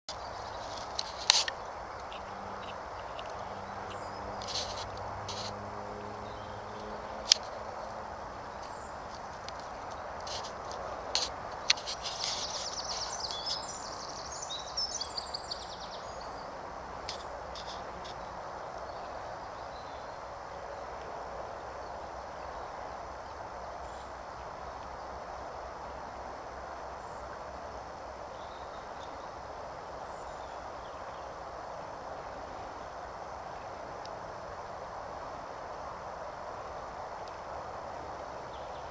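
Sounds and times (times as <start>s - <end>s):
small bird chirping: 0.1s - 5.6s, 8.5s - 16.5s
river water flowing: 0.1s - 38.9s.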